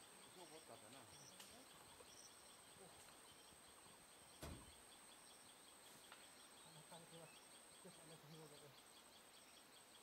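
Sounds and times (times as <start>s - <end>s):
faint chirps: 0.0s - 10.0s
soft thump: 4.4s - 4.7s.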